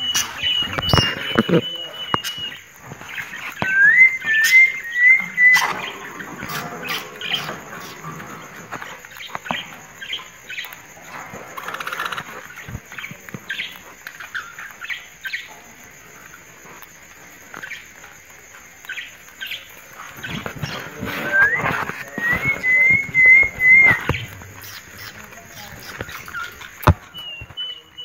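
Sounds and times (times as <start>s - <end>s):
budgerigars chirping: 0.0s - 3.6s, 18.9s - 28.0s
rising whistled note: 3.6s - 5.9s, 20.8s - 24.3s.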